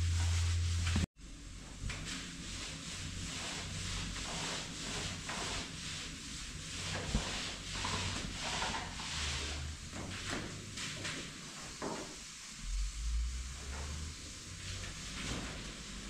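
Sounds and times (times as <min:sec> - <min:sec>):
paint roller on wall: 0:00.0 - 0:16.0.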